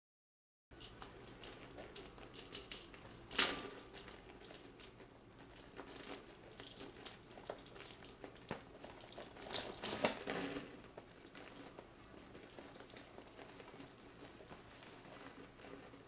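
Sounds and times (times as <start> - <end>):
paper bag crinkling: 5.4 - 16.0.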